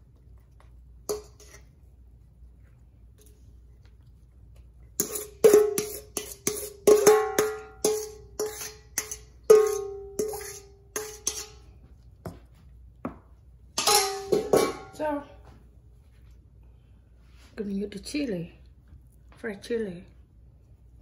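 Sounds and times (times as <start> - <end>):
metal spoon clanking on bowl: 1.1 - 1.6, 5.0 - 11.6, 13.8 - 15.0.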